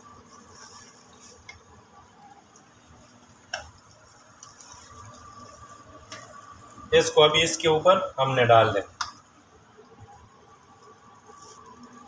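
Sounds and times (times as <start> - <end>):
spatula tapping pan: 3.5 - 3.8.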